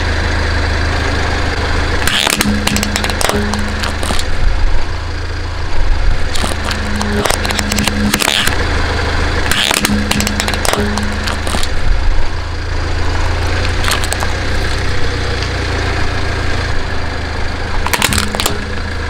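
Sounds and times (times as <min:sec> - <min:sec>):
car engine idling: 0:00.0 - 0:19.0
short sharp cracks: 0:17.8 - 0:18.8.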